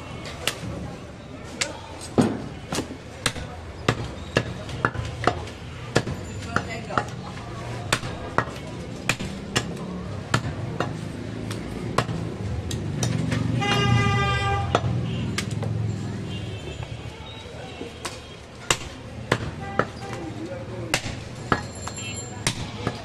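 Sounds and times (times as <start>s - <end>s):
cleaver chopping meat and bone: 2.2s - 7.2s, 7.8s - 13.4s, 18.0s - 20.0s, 20.8s - 23.0s
vehicle horn: 13.6s - 15.3s.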